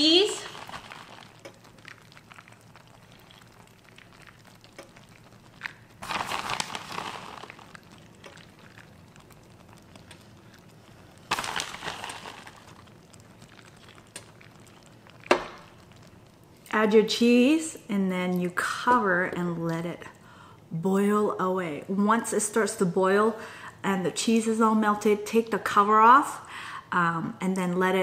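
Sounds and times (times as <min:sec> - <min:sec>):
cheese rustling: 0:00.0 - 0:16.3
faint crackles and clicks: 0:00.0 - 0:17.0.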